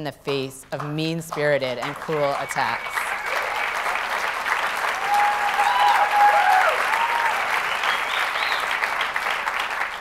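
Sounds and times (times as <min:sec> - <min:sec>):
audience applauding: 0:01.8 - 0:10.0
people cheering: 0:01.9 - 0:10.0.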